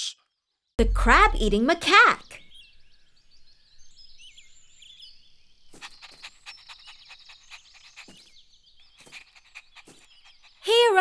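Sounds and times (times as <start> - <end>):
cartoon birds chirping: 0.8 - 2.6, 5.7 - 11.0
cartoon puppy panting: 5.8 - 8.3, 9.0 - 11.0.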